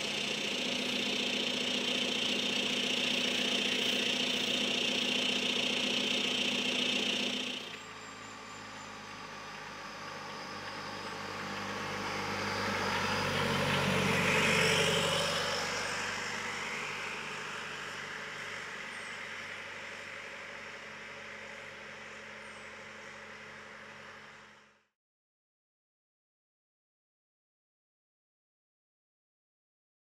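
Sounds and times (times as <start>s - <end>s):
diesel car driving past: 7.4s - 24.6s.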